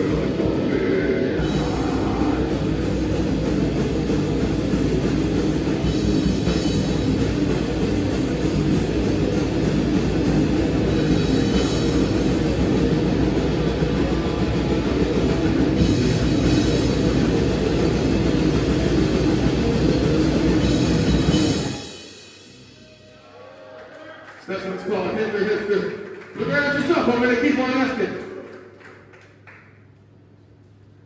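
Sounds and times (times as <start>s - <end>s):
band playing heavy guitar music: 0.0s - 22.8s.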